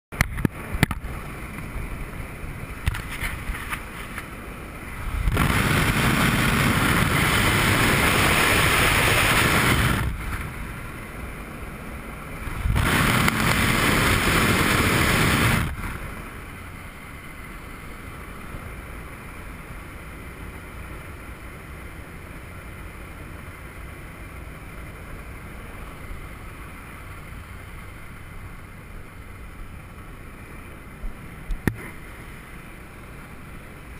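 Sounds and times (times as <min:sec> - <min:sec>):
airplane cabin drone: 0:00.2 - 0:33.9
wind rushing: 0:04.8 - 0:11.0, 0:12.3 - 0:16.4.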